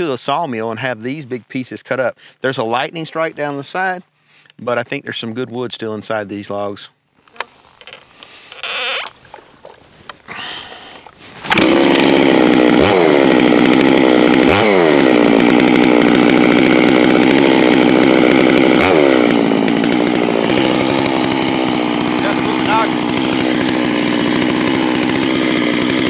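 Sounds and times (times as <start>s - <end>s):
chainsaw pull-start: 7.2s - 26.0s
chainsaw revving: 11.3s - 26.0s.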